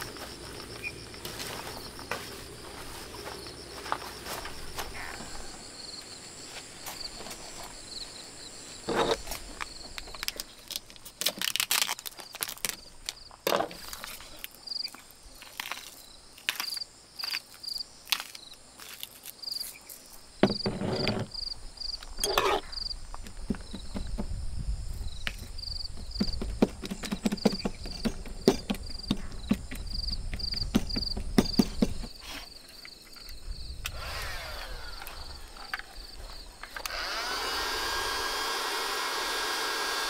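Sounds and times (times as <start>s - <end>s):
crickets chirping: 0.0s - 40.0s
plastic packaging crinkling: 10.0s - 13.2s
items knocking on a table: 20.4s - 21.3s.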